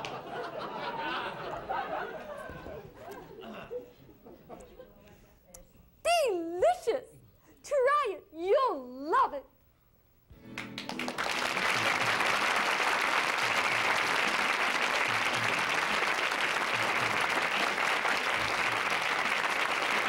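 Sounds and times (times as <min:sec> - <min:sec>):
audience applauding: 0:10.4 - 0:20.0.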